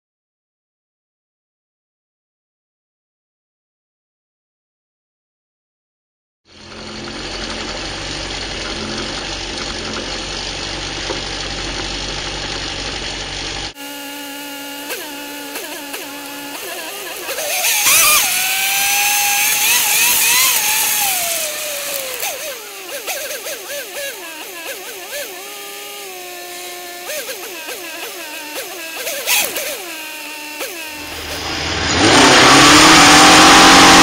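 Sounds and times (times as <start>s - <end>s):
race car engines idling: 6.5s - 13.8s, 31.0s - 32.3s
car engine and road noise: 6.5s - 34.0s
race car engines revving hard: 6.6s - 34.0s.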